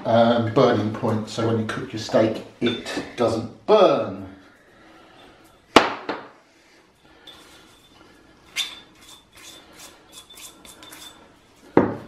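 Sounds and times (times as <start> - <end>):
clinks and scraping in mortar: 7.2 - 11.3.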